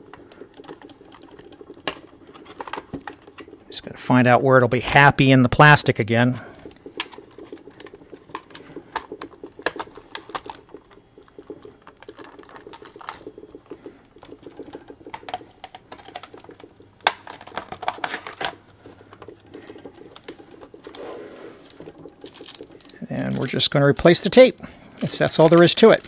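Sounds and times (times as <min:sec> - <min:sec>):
plastic shell clicking and creaking: 0:07.0 - 0:21.0.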